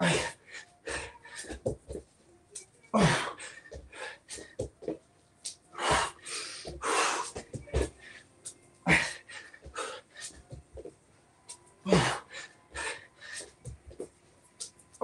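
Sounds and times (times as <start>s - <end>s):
man breathing hard: 0.0s - 1.7s, 5.7s - 10.6s, 11.8s - 13.7s
hands and feet thumping on mat: 1.4s - 2.1s, 5.8s - 8.0s.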